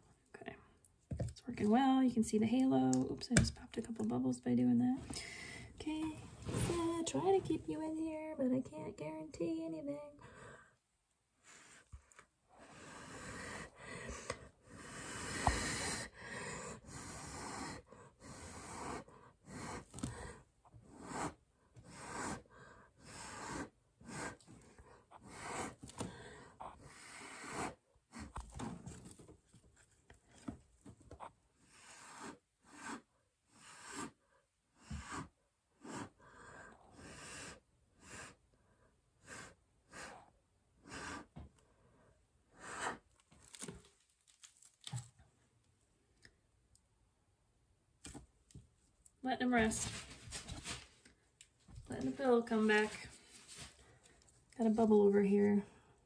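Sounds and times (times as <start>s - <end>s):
person blowing on wet paint: 31.7s - 34.2s.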